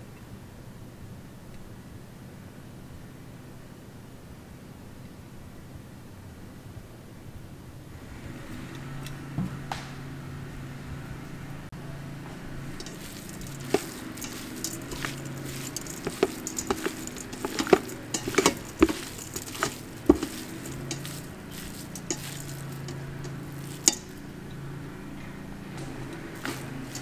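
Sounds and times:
steady low hum: 0:00.6 - 0:27.0
clicks against metal pot: 0:12.7 - 0:24.2
wet squishing of raw meat: 0:12.7 - 0:24.2.

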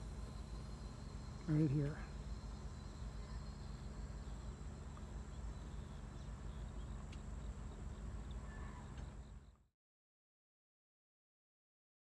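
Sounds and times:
crickets droning: 0:00.0 - 0:09.7
faint ticks: 0:04.9 - 0:05.1, 0:06.8 - 0:07.5, 0:08.2 - 0:09.6.

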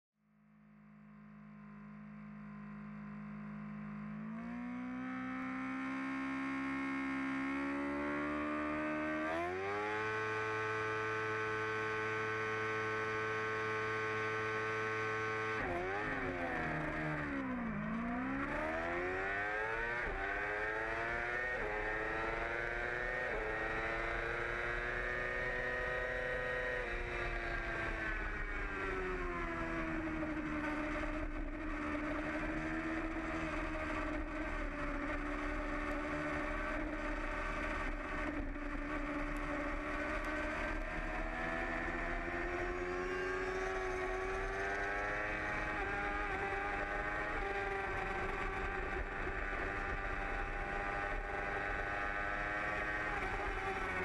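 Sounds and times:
motorcycle engine revving: 0:00.8 - 0:54.0.

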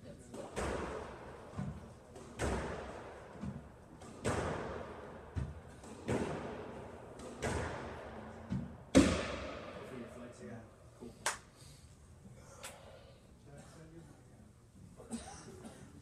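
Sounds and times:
squash ball hitting walls: 0:00.3 - 0:09.8.

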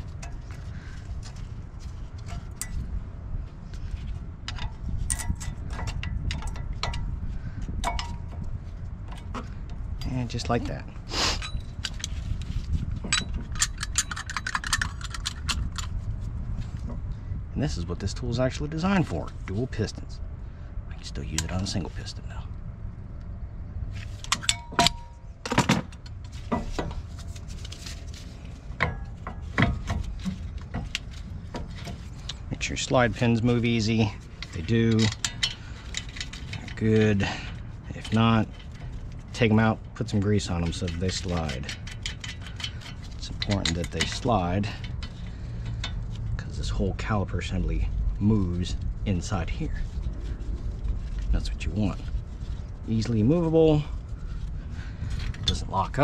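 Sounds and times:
steady low hum: 0:00.0 - 0:56.0
steady low rumble: 0:00.0 - 0:56.0
sharp metal clicks and clinks: 0:13.0 - 0:16.0, 0:24.2 - 0:26.8, 0:32.1 - 0:46.2.

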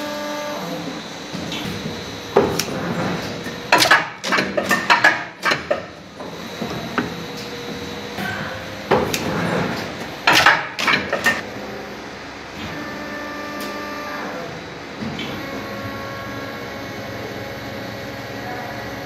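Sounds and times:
machine hum with whine tones: 0:00.0 - 0:19.0
sharp machine clacks and clatter: 0:02.4 - 0:05.9, 0:10.2 - 0:11.4.

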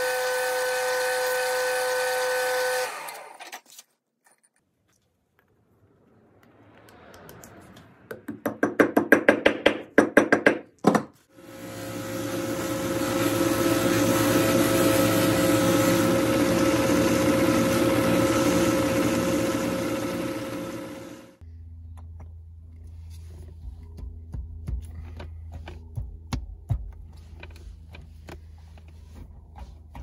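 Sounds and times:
drill press running: 0:11.4 - 0:21.4
knob polished on buffing wheel: 0:11.4 - 0:21.4.

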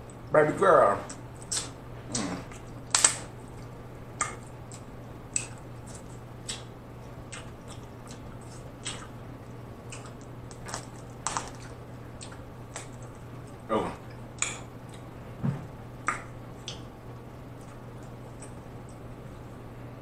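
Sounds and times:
low hum: 0:00.0 - 0:20.0
wet chewing: 0:01.0 - 0:15.1, 0:16.0 - 0:19.5
crab shell cracking: 0:01.1 - 0:06.7, 0:09.9 - 0:13.2.

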